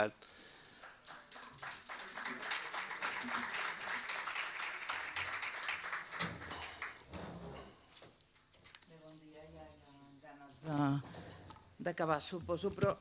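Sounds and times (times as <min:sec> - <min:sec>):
audience applauding: 0:00.7 - 0:07.1.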